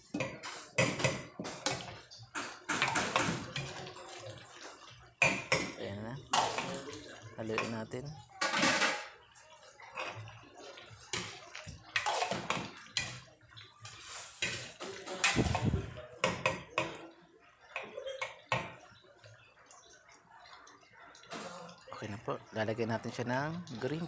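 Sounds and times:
sauce sloshing: 10.9 - 16.2
spoon knocking and scraping a pot: 13.8 - 17.0.

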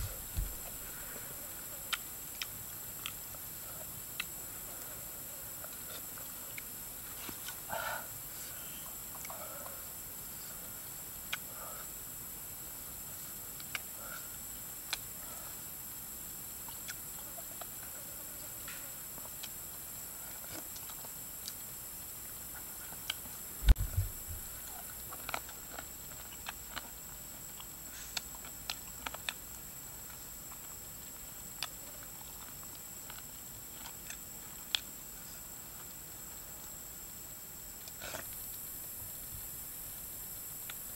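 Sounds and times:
dull thump: 0.0 - 1.1, 23.6 - 24.6
man chewing: 0.0 - 3.2, 22.5 - 34.9
steady high hiss: 0.0 - 40.9.

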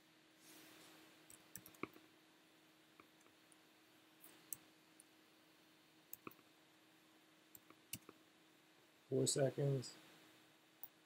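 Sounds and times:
faint steady hum: 0.0 - 11.0
mouse and keyboard clicks: 1.3 - 2.0.

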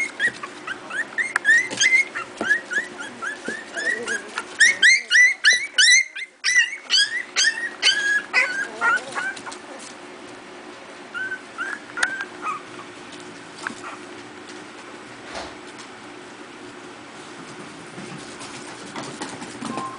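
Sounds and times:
puppies yipping and squealing: 0.0 - 9.9, 11.1 - 13.0, 13.7 - 14.2.

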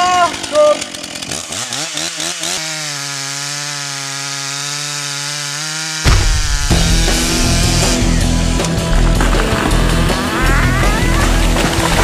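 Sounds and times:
chainsaw at full throttle: 0.0 - 12.0
loud bass-heavy sound: 6.1 - 10.2.

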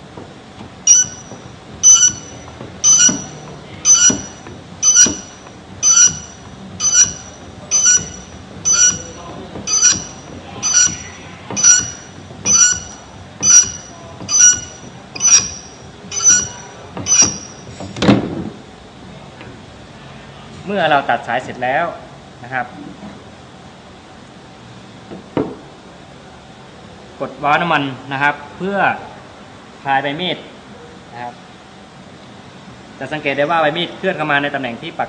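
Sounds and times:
pump handle squeaking: 0.8 - 18.0.

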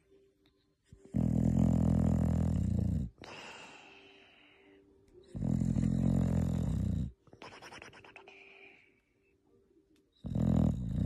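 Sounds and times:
dog snoring: 1.0 - 3.3, 5.3 - 7.2, 10.2 - 11.0
faintly whistling breath: 3.2 - 6.0.

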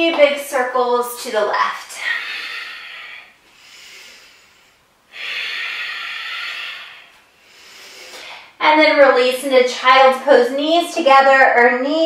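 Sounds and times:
woman breathing slowly: 1.9 - 8.6.

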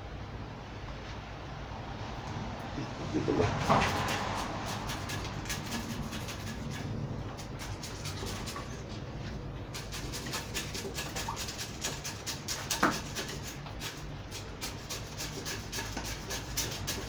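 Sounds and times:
chopstick scratching gritty soil: 3.5 - 8.9, 9.8 - 17.0.

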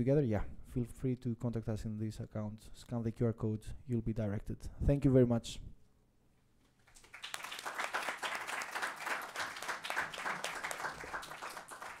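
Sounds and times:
audience applauding: 6.9 - 12.0.

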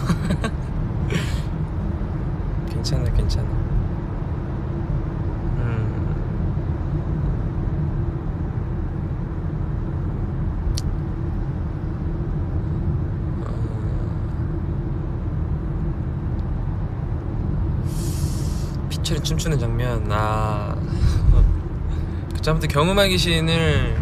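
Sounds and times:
car cabin rumble: 18.8 - 24.0.

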